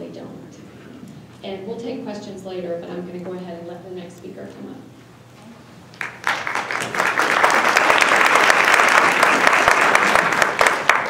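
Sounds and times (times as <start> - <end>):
audience applauding: 6.0 - 11.0.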